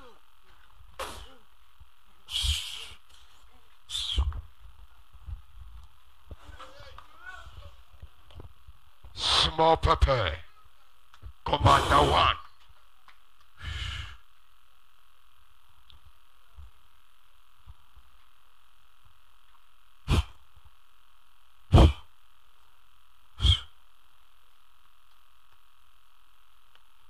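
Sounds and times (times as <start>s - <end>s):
sound system hum: 0.0s - 27.0s
breaths blown into microphone: 1.0s - 1.4s, 2.3s - 3.0s, 20.1s - 20.4s, 23.4s - 23.7s.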